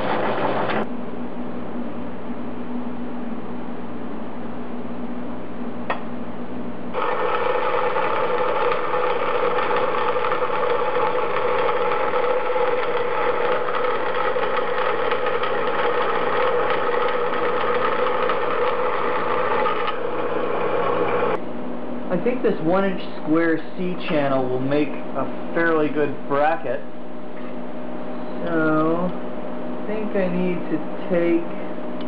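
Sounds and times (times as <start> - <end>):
bandsaw cutting metal: 7.0 - 21.4.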